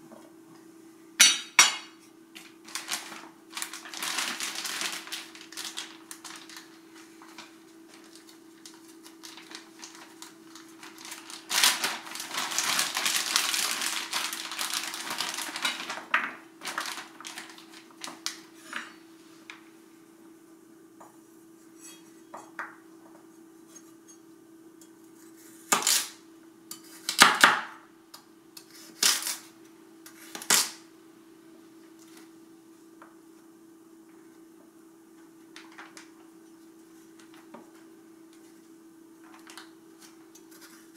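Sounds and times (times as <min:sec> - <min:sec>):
plastic bag crinkling: 0:02.4 - 0:18.6.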